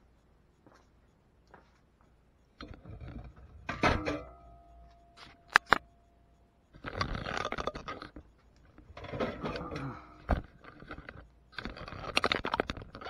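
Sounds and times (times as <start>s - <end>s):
sharp click: 5.2s - 6.0s.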